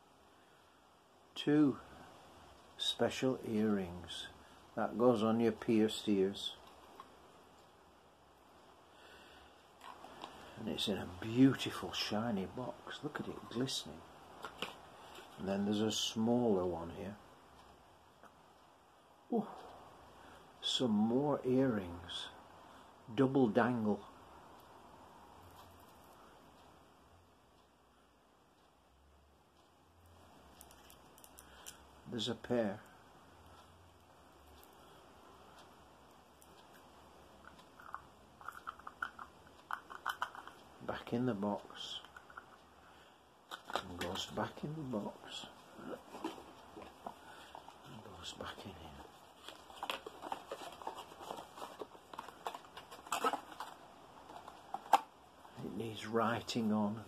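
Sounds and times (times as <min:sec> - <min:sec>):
faint jewellery handling sounds: 0:29.6 - 0:35.8, 0:36.4 - 0:40.8, 0:43.4 - 0:56.7
cardboard box rustling: 0:46.0 - 0:47.7, 0:49.0 - 0:55.0.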